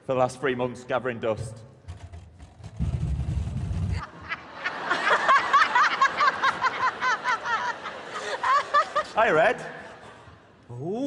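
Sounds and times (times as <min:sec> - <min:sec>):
audience laughing: 0:04.0 - 0:10.3.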